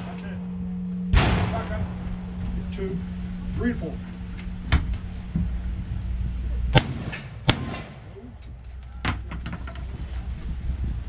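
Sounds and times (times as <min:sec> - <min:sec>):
rifle shots: 0:06.7 - 0:08.1.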